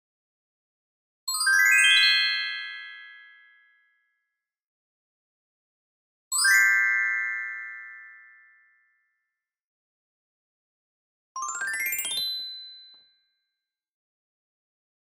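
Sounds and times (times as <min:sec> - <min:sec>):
sparkling bell-like chimes: 0:11.4 - 0:13.0.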